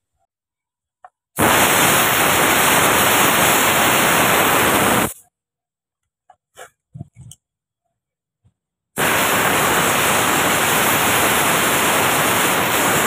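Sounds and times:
compressed air blow gun hissing: 0:01.4 - 0:05.2, 0:09.0 - 0:13.0.

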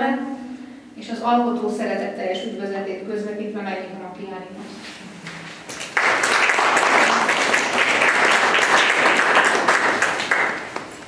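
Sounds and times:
audience applauding: 0:05.7 - 0:11.0.

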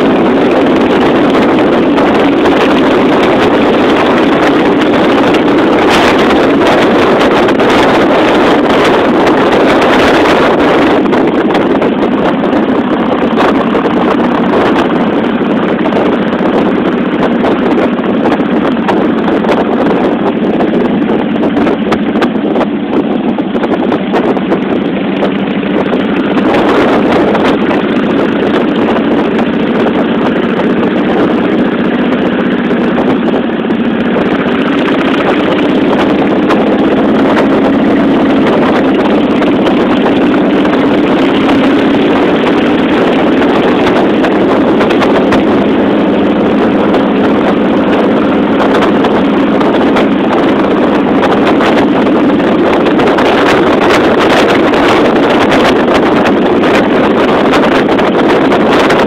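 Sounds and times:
motorcycle engine running: 0:00.0 - 0:59.0
wind rushing over microphone: 0:00.0 - 0:59.0.

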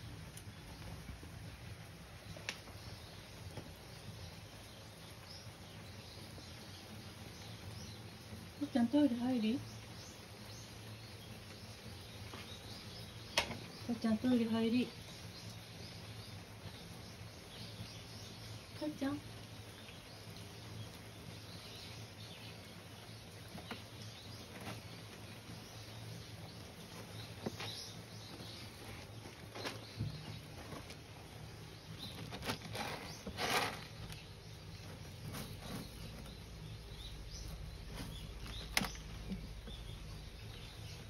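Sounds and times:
cat digging in litter: 0:31.9 - 0:39.8.

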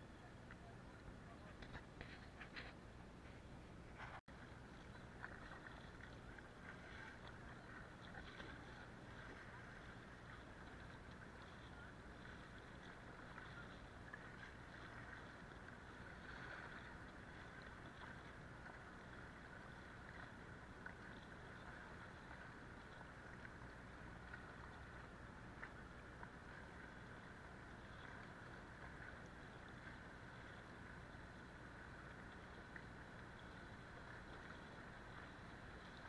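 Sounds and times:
river water rushing around hull: 0:03.9 - 0:36.0.

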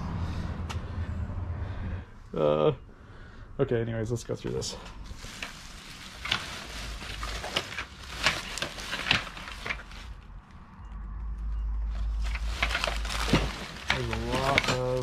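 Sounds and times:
steady low rumble: 0:00.0 - 0:07.4
plastic bag crinkling: 0:04.9 - 0:10.5, 0:11.9 - 0:15.0.

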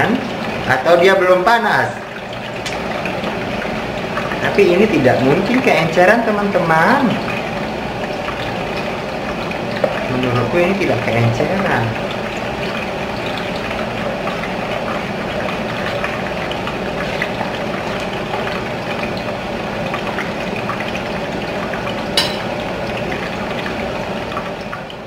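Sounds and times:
hot oil sizzling in a pan: 0:22.0 - 0:23.1.

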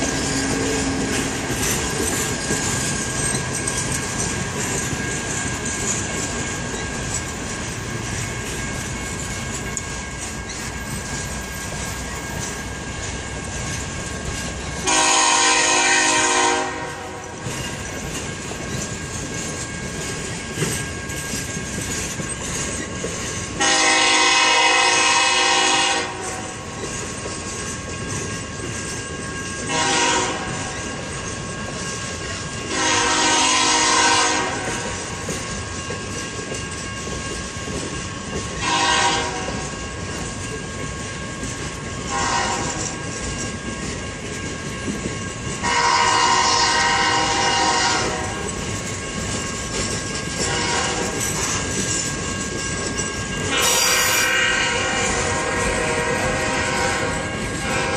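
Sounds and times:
train rumble and clickety-clack: 0:00.0 - 0:57.9
locomotive horn blasts: 0:14.8 - 0:17.3, 0:23.6 - 0:26.6, 0:29.7 - 0:30.7, 0:32.7 - 0:34.9, 0:38.6 - 0:39.7, 0:42.1 - 0:42.9, 0:45.6 - 0:48.5, 0:50.4 - 0:51.2, 0:53.5 - 0:57.9.

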